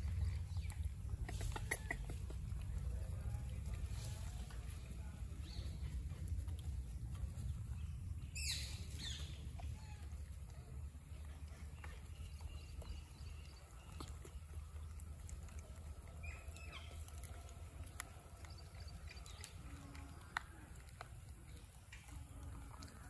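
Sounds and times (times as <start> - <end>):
steady low rumble: 0.0 - 22.7
faint clicks: 13.9 - 23.0.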